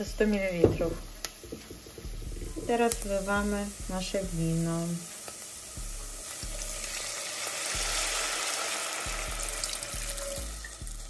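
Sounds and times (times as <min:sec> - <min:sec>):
sizzling in hot butter: 0:00.0 - 0:11.0
wine pouring into a pot: 0:06.5 - 0:10.9.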